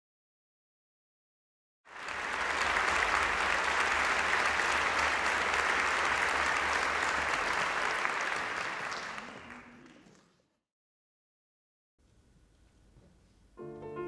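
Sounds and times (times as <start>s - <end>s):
audience applauding: 1.9s - 10.5s.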